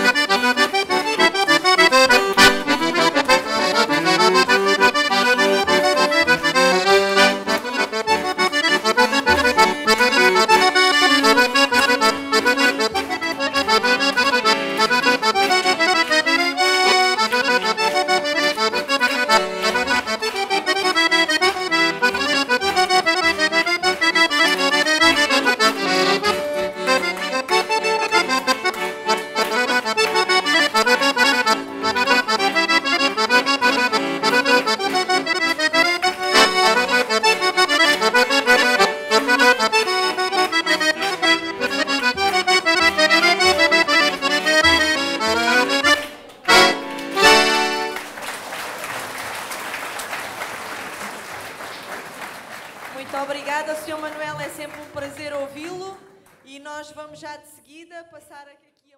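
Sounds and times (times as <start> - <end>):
accordion playing fast tune: 0.0 - 48.3, 52.9 - 55.8
applause: 12.9 - 23.0, 46.0 - 55.6.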